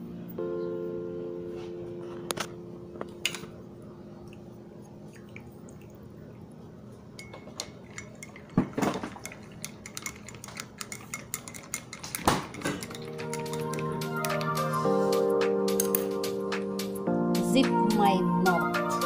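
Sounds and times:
stirrer clicking against mug: 7.2s - 14.6s.

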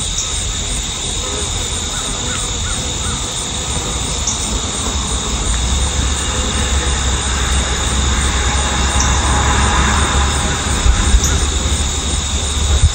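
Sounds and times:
high-pitched hum: 0.0s - 12.9s
low rumble: 0.4s - 12.9s.

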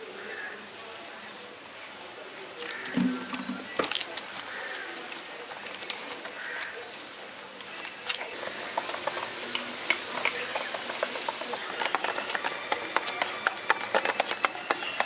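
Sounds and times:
water pouring: 2.7s - 4.1s
whisk scraping steel bowl: 8.3s - 15.0s.

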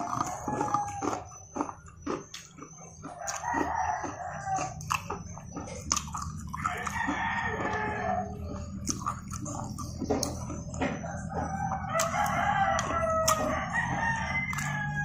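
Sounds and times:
rooster crowing: 0.0s - 1.7s, 3.0s - 5.3s, 6.5s - 8.7s, 10.5s - 15.0s
crunching of fried chicken being chewed: 0.0s - 15.0s.

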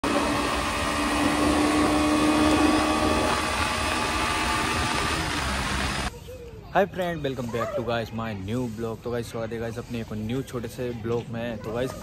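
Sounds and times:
motorcycle engine running: 0.0s - 6.1s
road noise: 0.0s - 6.1s.

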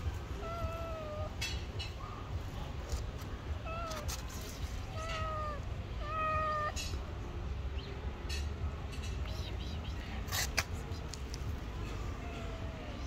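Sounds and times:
kitten meowing: 0.4s - 1.5s, 3.6s - 4.3s, 4.9s - 7.0s.

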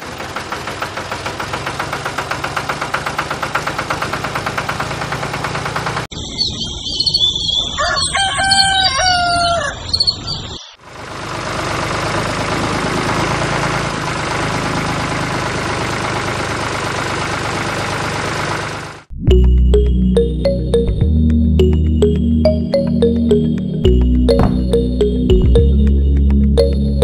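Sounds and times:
small birds chirping: 6.1s - 10.8s
rooster crowing: 7.7s - 10.1s.

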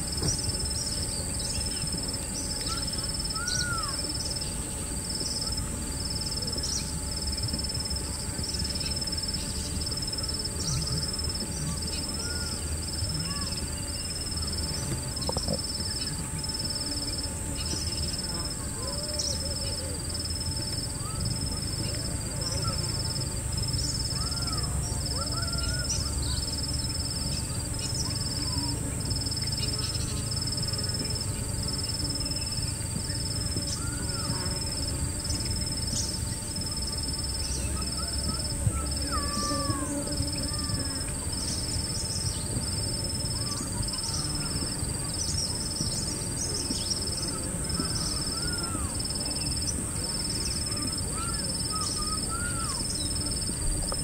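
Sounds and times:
steady high drone: 0.0s - 54.0s
birds calling: 0.2s - 5.7s, 8.8s - 16.4s.

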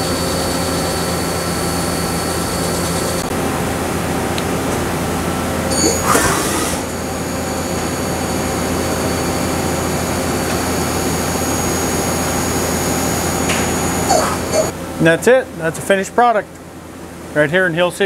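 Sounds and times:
machine high whine: 0.0s - 3.4s, 5.6s - 14.7s
machine constant hum: 0.0s - 18.0s.

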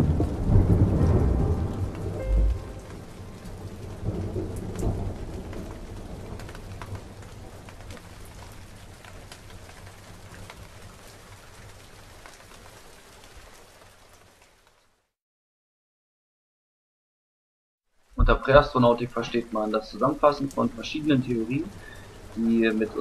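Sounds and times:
low thunder rumble: 0.0s - 7.7s
rain drops ticking: 0.0s - 15.1s, 17.9s - 23.0s.

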